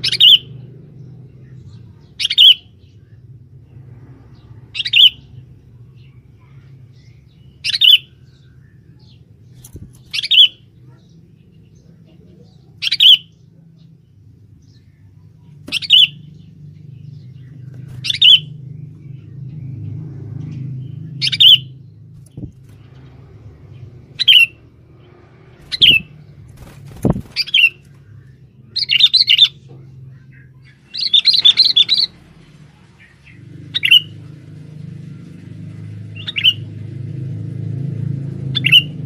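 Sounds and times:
faint low hum: 0.0s - 38.5s
bird giving sharp calls: 17.8s - 18.6s, 24.2s - 24.6s, 25.6s - 27.8s.

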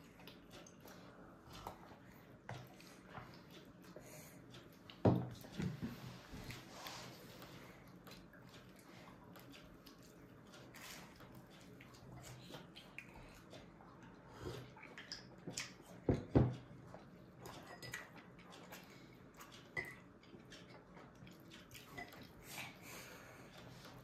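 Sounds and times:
babies eating smacks and clicks: 0.0s - 24.0s.

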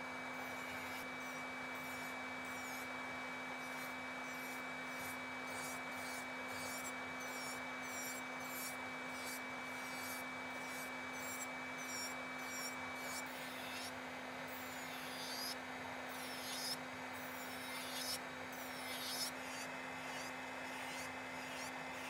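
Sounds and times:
electric nail drill humming: 0.0s - 22.0s
drill bit scratching nail: 0.4s - 2.9s, 3.6s - 22.0s.

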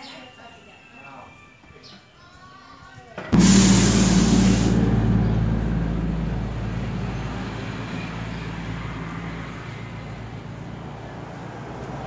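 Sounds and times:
loud hiss: 3.4s - 8.0s
low engine hum with rumble: 3.4s - 12.0s.

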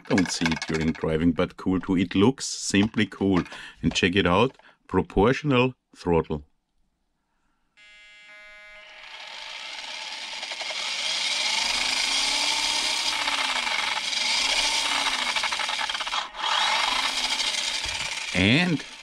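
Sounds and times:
toy car motor whirring: 0.0s - 1.2s, 8.3s - 19.0s.

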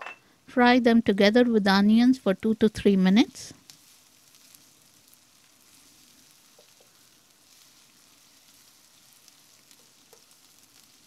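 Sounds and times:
onions frying in oil: 1.5s - 11.0s
spatula tapping pan: 6.5s - 6.9s, 9.7s - 10.4s.

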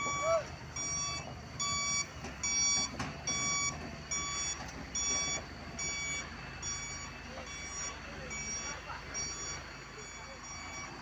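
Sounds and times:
diesel engine running: 0.0s - 11.0s
excavator travel alarm beeping: 0.0s - 11.0s.

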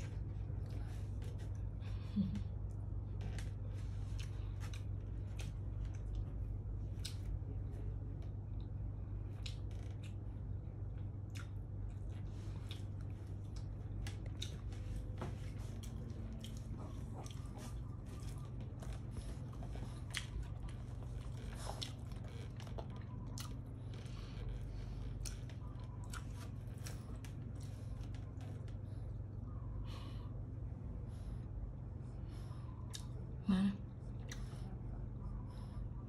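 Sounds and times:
soft chewing and clicking: 0.0s - 30.0s, 31.6s - 36.0s
steady low hum: 0.0s - 36.0s.

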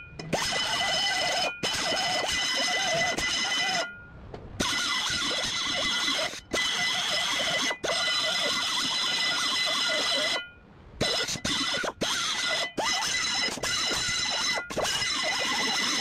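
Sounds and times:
screwdriver turning screws: 0.3s - 3.8s, 4.6s - 10.3s.

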